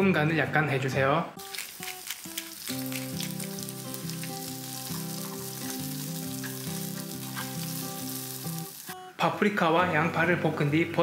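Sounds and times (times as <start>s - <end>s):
soft background music: 0.0s - 11.0s
vegetables sizzling in oil: 1.4s - 9.0s.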